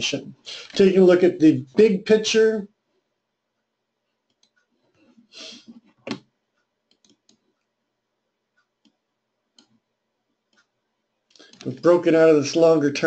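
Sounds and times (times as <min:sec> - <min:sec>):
computer mouse clicks: 0:04.3 - 0:04.7, 0:06.9 - 0:07.7, 0:09.6 - 0:09.8, 0:11.3 - 0:11.8.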